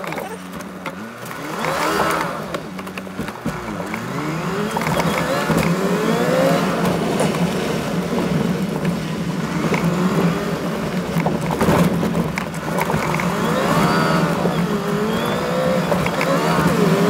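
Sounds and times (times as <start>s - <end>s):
knocks and rattles: 0.0s - 10.1s, 10.7s - 13.5s
engine droning: 0.0s - 17.0s
tyre and road noise: 0.0s - 17.0s.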